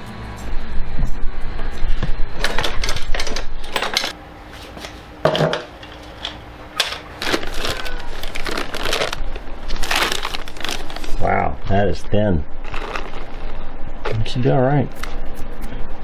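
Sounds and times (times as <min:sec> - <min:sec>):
plastic bag crinkling: 0:07.1 - 0:11.2, 0:12.6 - 0:13.6.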